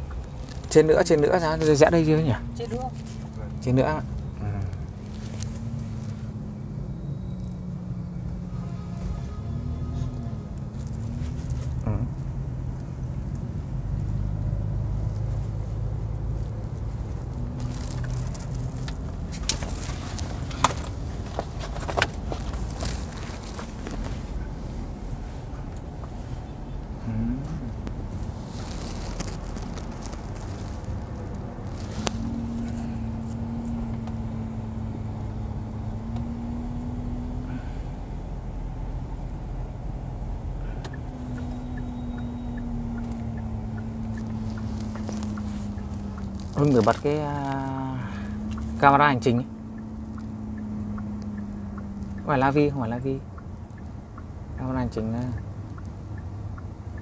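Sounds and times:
car cabin hum: 0:00.0 - 0:57.0
rustling: 0:04.7 - 0:06.3, 0:09.9 - 0:11.8, 0:15.0 - 0:26.4, 0:27.9 - 0:34.0, 0:44.0 - 0:48.8
faint light ticking: 0:49.5 - 0:57.0.

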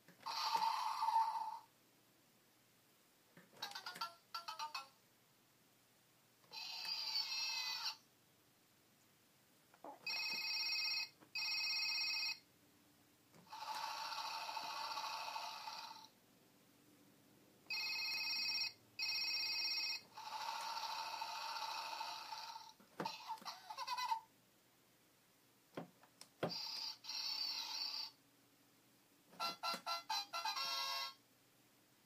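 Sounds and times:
telephone ring sound effect: 0:00.2 - 0:01.6, 0:06.5 - 0:08.0, 0:10.0 - 0:12.4, 0:13.5 - 0:16.1, 0:17.7 - 0:24.2, 0:26.5 - 0:28.2, 0:29.4 - 0:31.2.

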